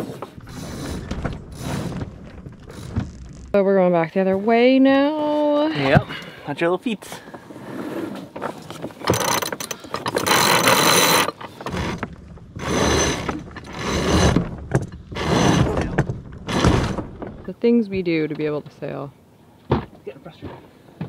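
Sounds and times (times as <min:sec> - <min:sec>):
winch ratcheting: 0:00.4 - 0:03.6, 0:09.0 - 0:17.4.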